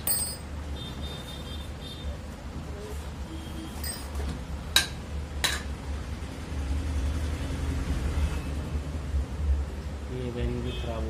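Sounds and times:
sharp metallic clinks: 0.0s - 0.5s.

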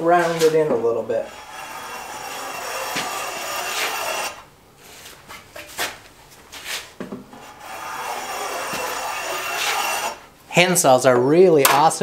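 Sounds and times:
hand plane shaving wood: 0.2s - 5.2s, 6.6s - 10.2s.

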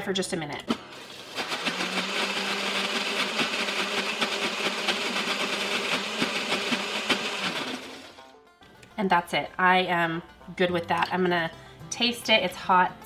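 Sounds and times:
blender motor running: 0.7s - 8.2s.

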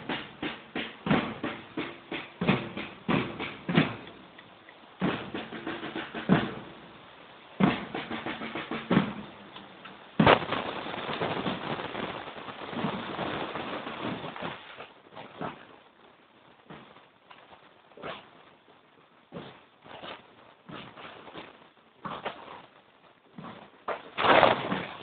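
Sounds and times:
marching drums: 0.0s - 15.7s.

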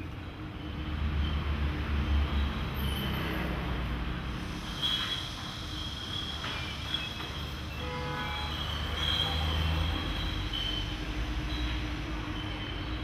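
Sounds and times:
vehicle rumble: 0.0s - 13.0s
faint high squeal: 4.4s - 13.0s.

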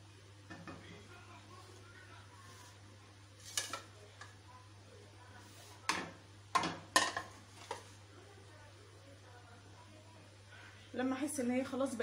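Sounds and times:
plate knocking on countertop: 5.9s - 7.8s.

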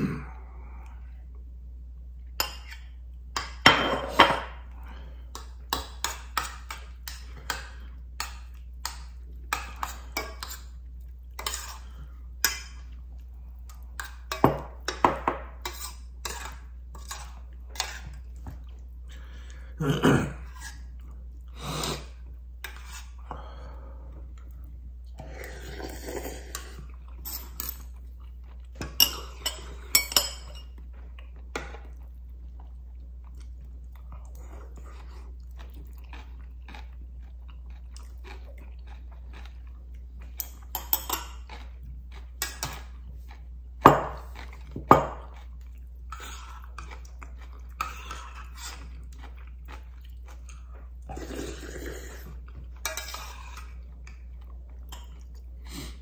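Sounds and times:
chewing: 30.7s - 43.6s, 44.2s - 55.7s.

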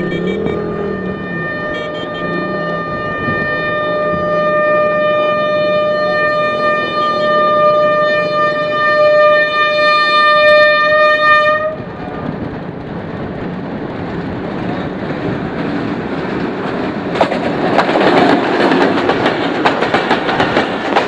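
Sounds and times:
locomotive horn blast: 0.0s - 11.9s
train running noise: 0.0s - 21.0s.

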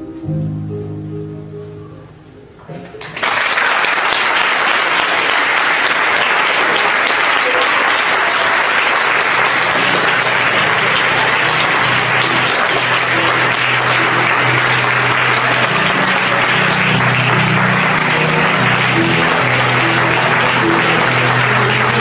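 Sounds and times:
low music notes: 0.0s - 3.4s, 9.0s - 22.0s
audience applauding: 3.0s - 22.0s.

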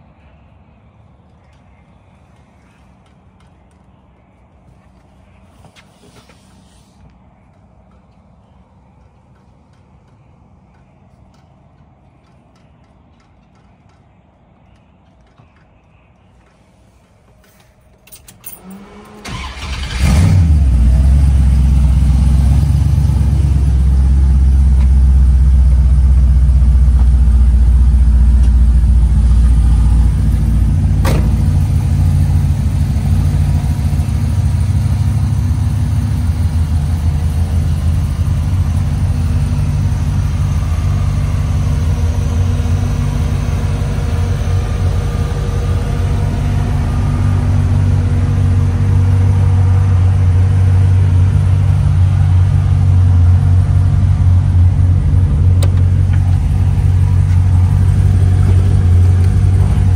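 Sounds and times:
car engine starting and idling: 14.6s - 59.9s.

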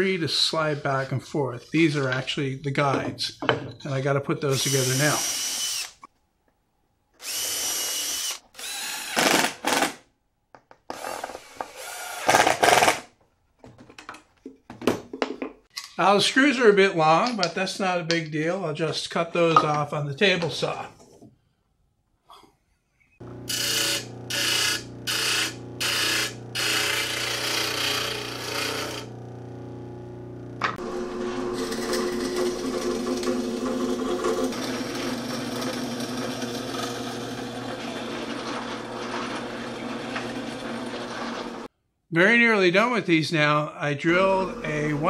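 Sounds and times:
cordless drill boring into plywood: 4.5s - 6.1s, 7.2s - 9.8s, 10.9s - 12.9s, 23.5s - 29.1s
disc sander motor humming: 23.2s - 41.7s.

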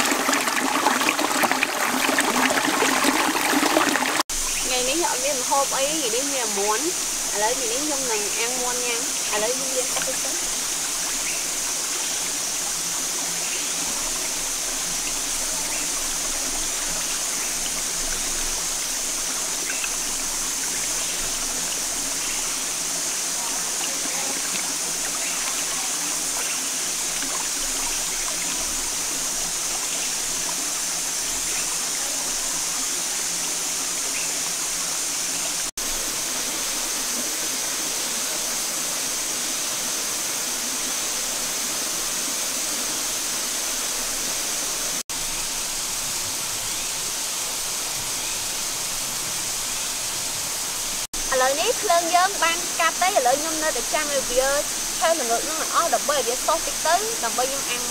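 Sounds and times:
rocky stream running: 0.0s - 57.9s.

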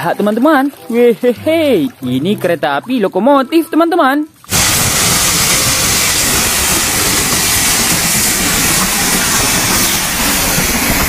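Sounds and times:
steam hissing: 4.5s - 11.0s
train running: 4.5s - 11.0s.

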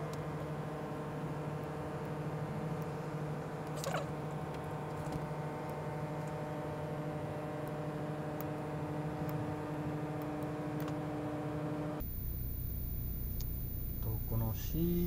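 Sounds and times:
whirring hum: 0.0s - 15.0s
high thin whine: 12.0s - 15.0s
low rumble: 12.0s - 15.0s.

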